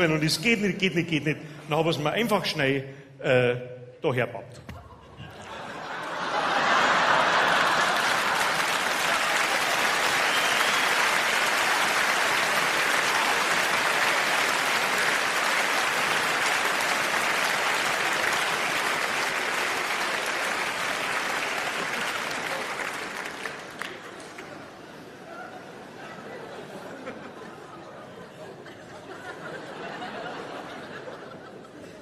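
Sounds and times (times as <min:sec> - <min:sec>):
audience applauding: 0:05.4 - 0:24.8.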